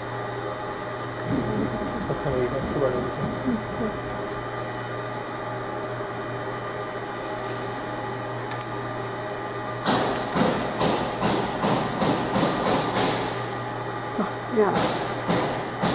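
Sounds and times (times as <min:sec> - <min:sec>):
laser marking machine hum: 0:00.0 - 0:15.9.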